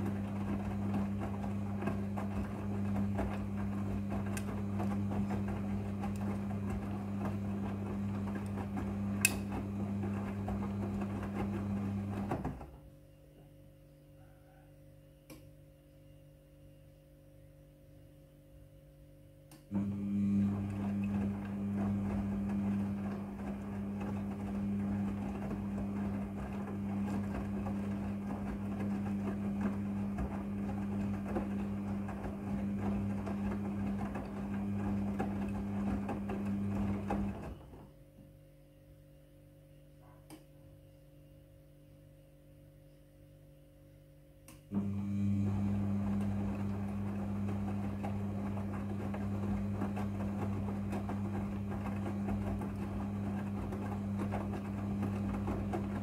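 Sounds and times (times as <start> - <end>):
drum tumbling wet laundry: 0.0 - 13.0, 19.7 - 38.4, 44.7 - 56.0
washing machine motor humming: 0.0 - 13.6, 19.5 - 39.0, 44.1 - 56.0.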